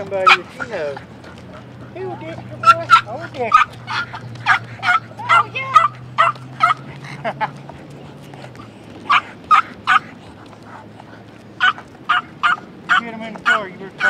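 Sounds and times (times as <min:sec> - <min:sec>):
dog barking: 0:00.2 - 0:00.5, 0:02.6 - 0:06.8, 0:09.1 - 0:10.1, 0:11.6 - 0:13.7.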